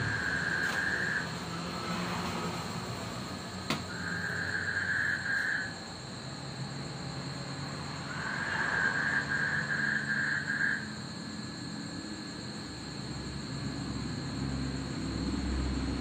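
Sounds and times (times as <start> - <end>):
frog calling in pulsing trills: 0.0 - 1.3, 3.9 - 5.8, 8.0 - 10.9
distant traffic hum: 0.0 - 16.0
high insect whine: 0.0 - 16.0.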